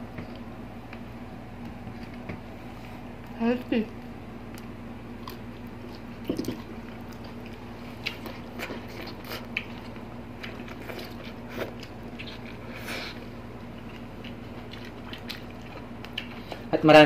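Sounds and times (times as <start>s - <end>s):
faint low hum: 0.0s - 17.0s
wet chewing and biting: 4.6s - 16.6s.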